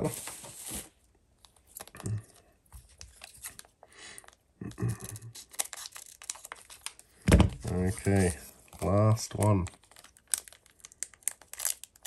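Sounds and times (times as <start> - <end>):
plastic packet crinkling: 3.1 - 12.0.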